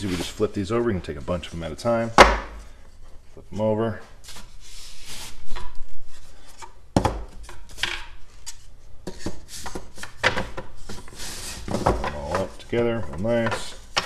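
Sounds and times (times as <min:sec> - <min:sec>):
wood sliding against wood: 0:00.0 - 0:00.6.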